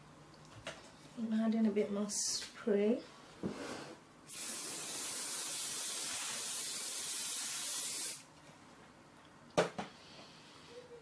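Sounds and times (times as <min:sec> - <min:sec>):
aerosol can spraying: 0:04.3 - 0:08.3.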